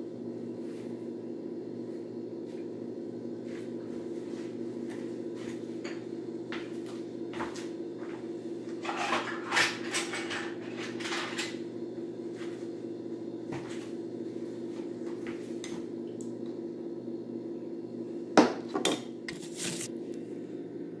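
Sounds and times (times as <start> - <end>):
steady low hum: 0.0 - 21.0
dishes and utensils clinking: 8.8 - 11.6.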